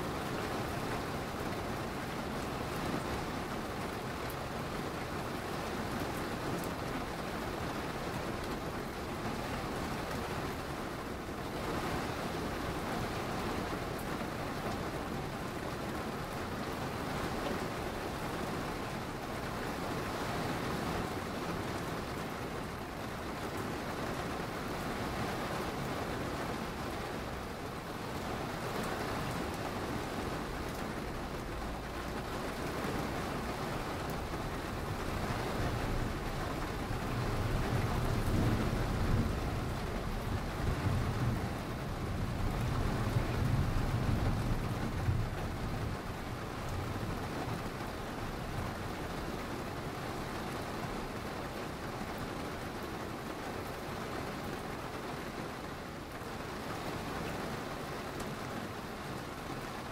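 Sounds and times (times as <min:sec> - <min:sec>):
steady rainfall hiss: 0:00.0 - 0:59.9.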